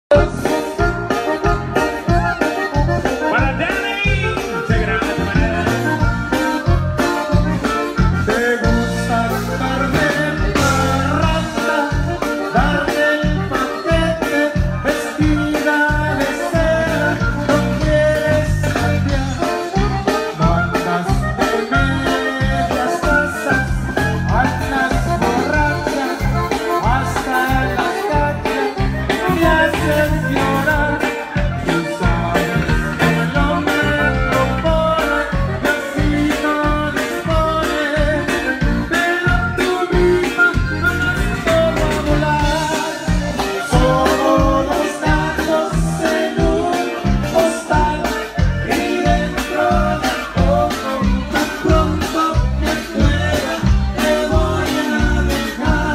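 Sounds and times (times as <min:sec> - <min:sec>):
electric bass: 0:00.0 - 0:55.9
man singing into microphone: 0:00.1 - 0:00.8, 0:03.1 - 0:55.9
button accordion: 0:00.1 - 0:55.9
drum kit beat: 0:00.1 - 0:55.9.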